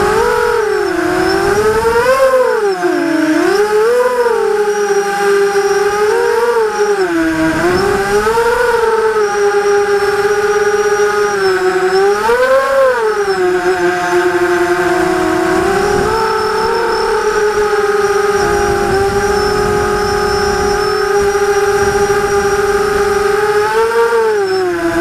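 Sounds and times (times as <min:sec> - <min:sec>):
quadcopter motors whining: 0:00.0 - 0:25.0.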